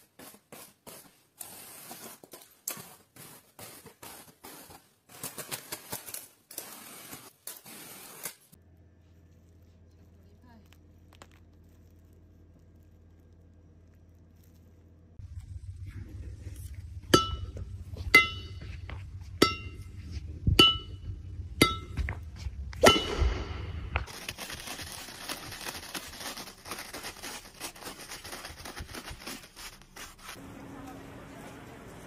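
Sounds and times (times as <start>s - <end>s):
badminton racket hitting shuttlecock: 22.8s - 23.8s
stiff paper crinkling: 24.1s - 30.4s.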